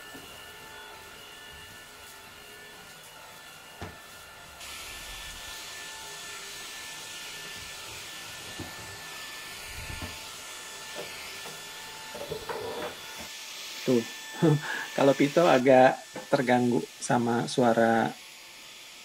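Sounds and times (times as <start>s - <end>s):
vacuum motor whine: 0.0s - 19.0s
suction hiss: 12.1s - 17.3s.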